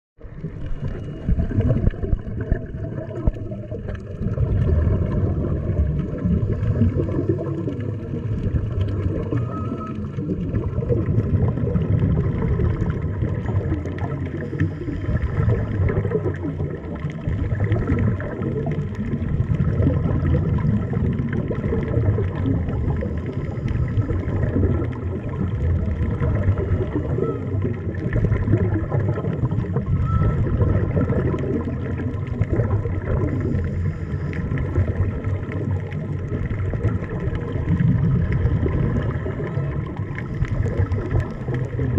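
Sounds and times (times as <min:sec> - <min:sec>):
faint steady tones: 0:00.2 - 0:04.1, 0:04.9 - 0:41.9
muffled underwater rumble: 0:00.2 - 0:41.9
regulator bubbles gurgling: 0:00.2 - 0:41.9.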